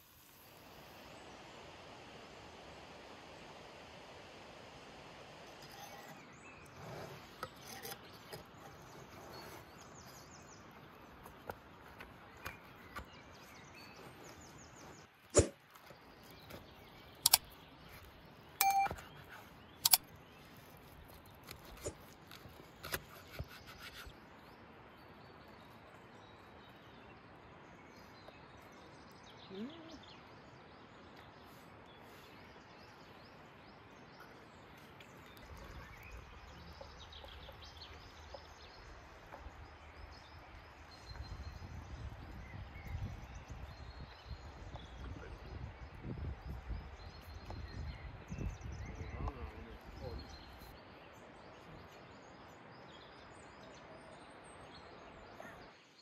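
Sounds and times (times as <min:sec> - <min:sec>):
steady low hiss: 0:00.0 - 0:07.5.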